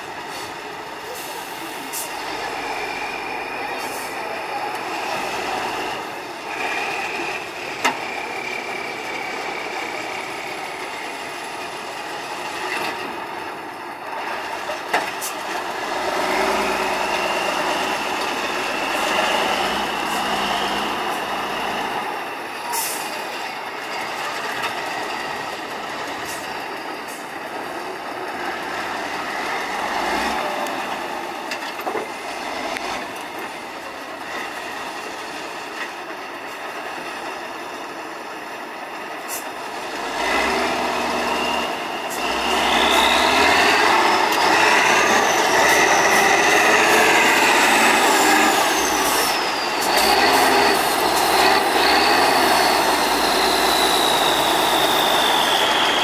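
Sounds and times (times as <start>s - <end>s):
diesel truck engine revving: 0.1s - 35.8s, 36.4s - 56.0s.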